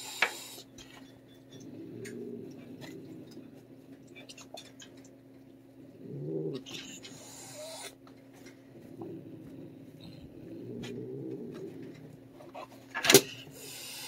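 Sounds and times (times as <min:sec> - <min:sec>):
cat growling: 0:01.5 - 0:03.7, 0:05.8 - 0:08.0, 0:08.7 - 0:14.0
cat hissing: 0:06.1 - 0:08.0, 0:12.6 - 0:14.0.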